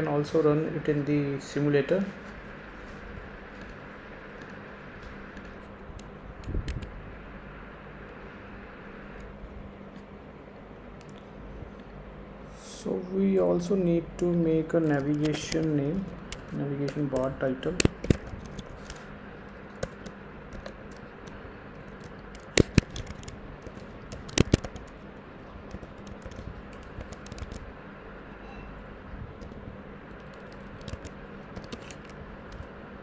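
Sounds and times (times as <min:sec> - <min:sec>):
keyboard typing: 0:14.7 - 0:27.7, 0:29.4 - 0:32.7.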